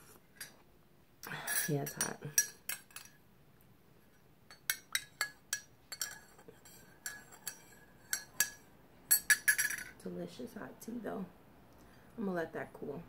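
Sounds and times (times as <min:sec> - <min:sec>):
teaspoon clinking in a ceramic mug: 0:04.5 - 0:09.9.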